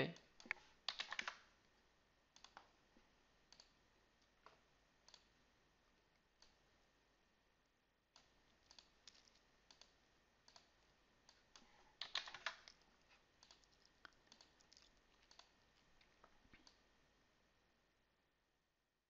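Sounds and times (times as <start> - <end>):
keyboard keystrokes: 0.4 - 1.4, 12.0 - 12.8
mouse clicks: 2.4 - 2.7, 3.5 - 3.8, 4.4 - 5.3, 8.2 - 12.8.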